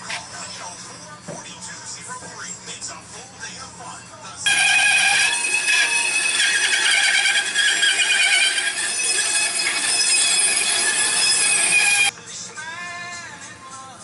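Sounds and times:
bandsaw cutting wood: 0:04.5 - 0:12.1.

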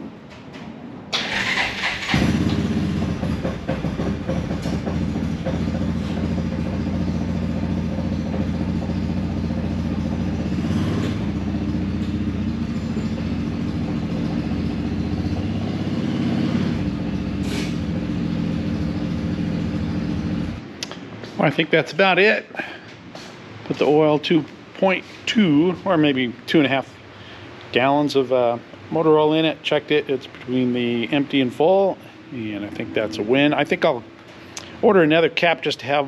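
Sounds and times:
engine running steadily: 0:00.3 - 0:21.4, 0:30.5 - 0:35.2
engine starter turning over: 0:01.1 - 0:03.0.

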